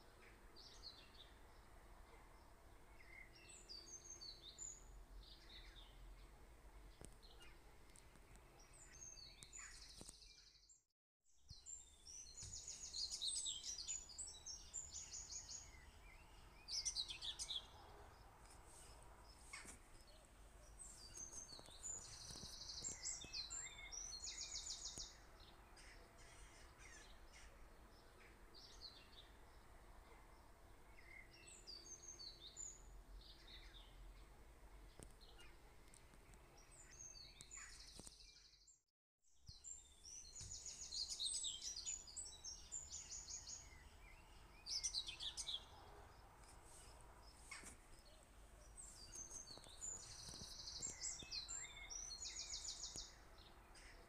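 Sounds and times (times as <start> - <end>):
small birds singing: 0.0 - 54.0.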